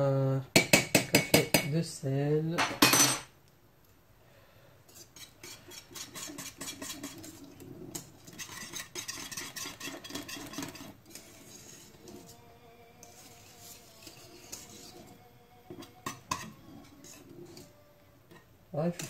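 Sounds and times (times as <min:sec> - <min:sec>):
metal utensil stirring in pot: 0:04.9 - 0:19.0.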